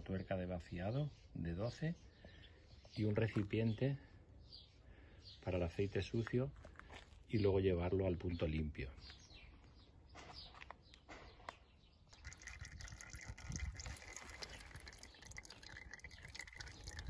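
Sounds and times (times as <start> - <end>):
oil trickling into container: 12.0 - 17.0.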